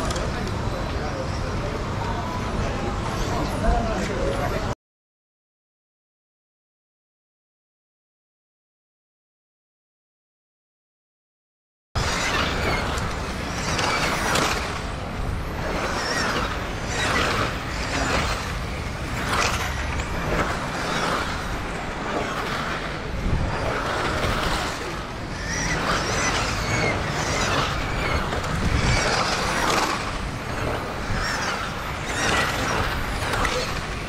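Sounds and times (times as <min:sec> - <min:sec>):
rc cars racing past: 0:12.0 - 0:34.0.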